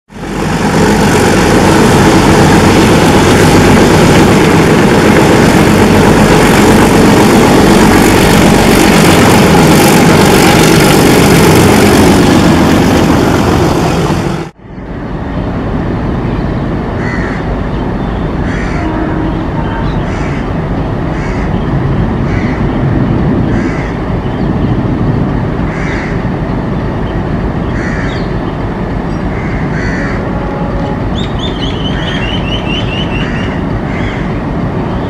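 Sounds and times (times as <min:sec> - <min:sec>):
diesel locomotive engine: 0:00.1 - 0:35.0
crow cawing: 0:17.0 - 0:17.4, 0:18.4 - 0:18.9, 0:20.0 - 0:20.5, 0:21.1 - 0:21.5, 0:22.2 - 0:22.6, 0:23.5 - 0:24.0, 0:25.7 - 0:26.2, 0:27.8 - 0:28.3, 0:29.3 - 0:30.2, 0:33.1 - 0:34.3.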